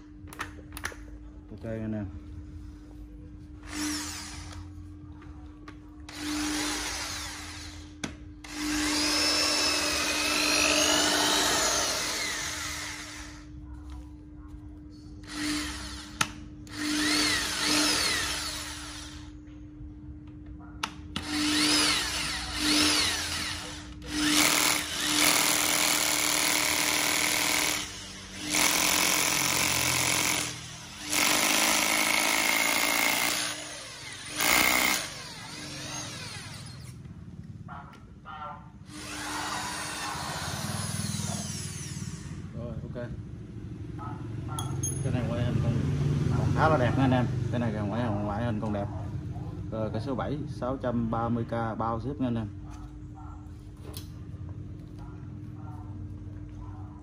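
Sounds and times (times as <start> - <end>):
drill whining into wood: 3.6 - 4.7, 6.1 - 13.5, 15.2 - 19.3, 21.2 - 37.0, 38.9 - 42.4.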